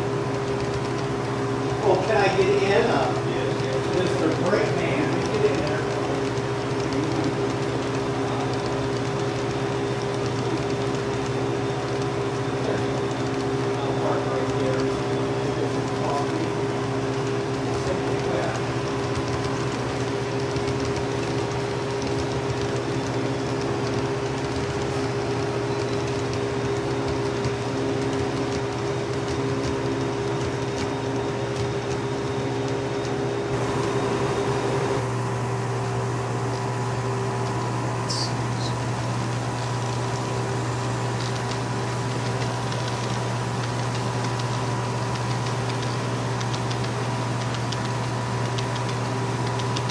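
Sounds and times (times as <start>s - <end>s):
model trains humming: 0.8s - 28.7s.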